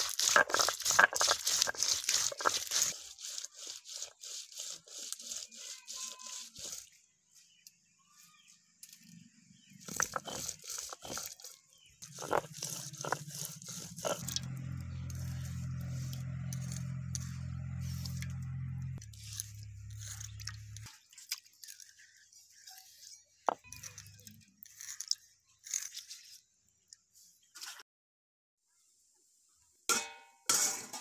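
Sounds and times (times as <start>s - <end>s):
stone roller grinding on stone slab: 0.0s - 6.9s, 9.6s - 20.9s.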